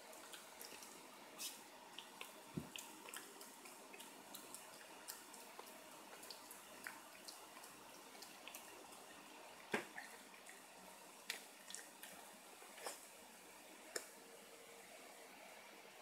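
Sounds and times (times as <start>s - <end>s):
puppy chewing a treat: 1.9s - 9.0s.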